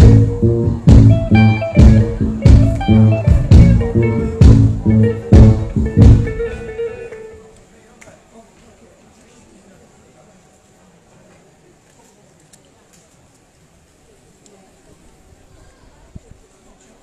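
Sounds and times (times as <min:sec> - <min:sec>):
bass line: 0:00.0 - 0:07.0
live band music: 0:00.0 - 0:07.4
electric guitar: 0:00.0 - 0:07.5.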